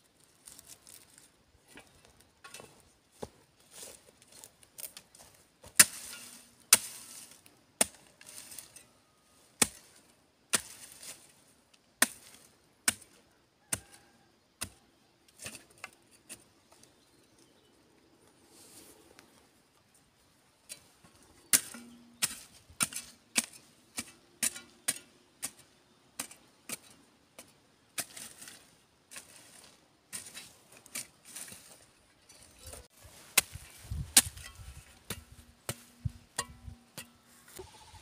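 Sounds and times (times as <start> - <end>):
hoe striking hard earth: 5.6 - 8.8, 20.7 - 29.4, 32.4 - 37.8.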